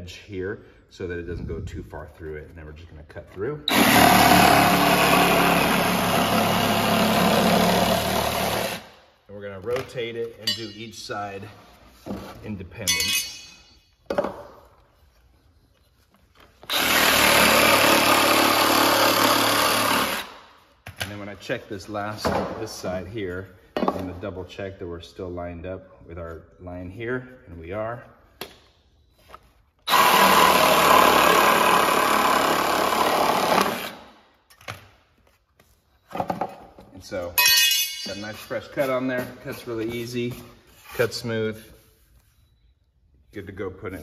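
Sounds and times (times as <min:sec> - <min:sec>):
reciprocating saw cutting foam: 0:03.7 - 0:08.9, 0:16.7 - 0:20.4, 0:29.9 - 0:34.1.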